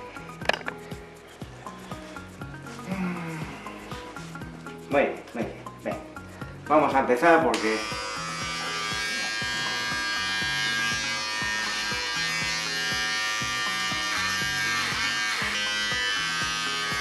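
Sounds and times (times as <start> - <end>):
electric dog clipper buzzing: 7.5 - 17.0.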